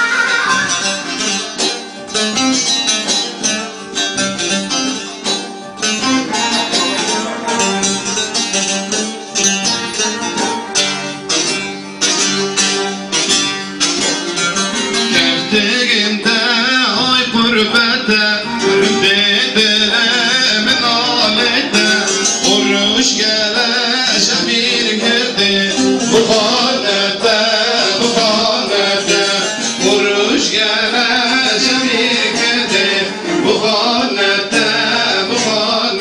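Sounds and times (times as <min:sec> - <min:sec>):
long-necked lute plucked: 0:00.0 - 0:36.0
man singing: 0:14.9 - 0:36.0.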